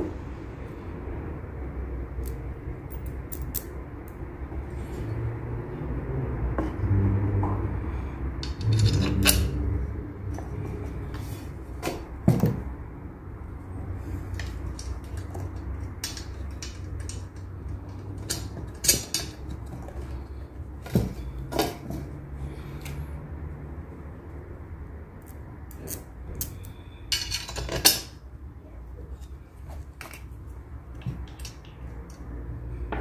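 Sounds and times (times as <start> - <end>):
clicks and knocks of hardware: 8.4 - 9.6, 14.3 - 20.2, 30.9 - 32.2.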